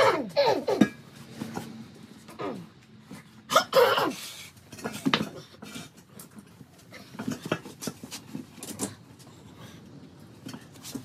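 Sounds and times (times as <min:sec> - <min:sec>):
hand tools and metal parts clinking: 0:00.0 - 0:03.5, 0:04.3 - 0:09.5.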